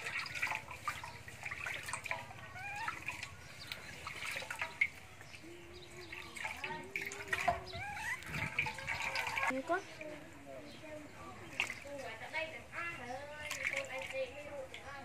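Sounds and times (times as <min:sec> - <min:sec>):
water splashing into steel basin: 0:00.0 - 0:09.8, 0:11.5 - 0:12.2, 0:13.3 - 0:14.9
high squeaky animal calls: 0:02.4 - 0:03.4, 0:07.5 - 0:09.5.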